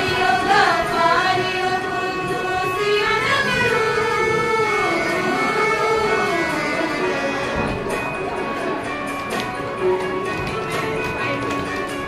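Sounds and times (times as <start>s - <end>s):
girls singing together: 0.0s - 6.6s.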